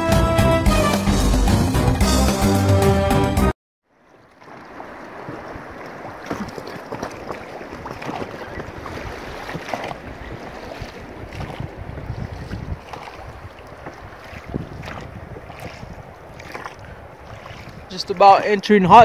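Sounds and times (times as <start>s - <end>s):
water lapping against raft: 3.9s - 19.0s
wind on microphone: 5.1s - 19.0s.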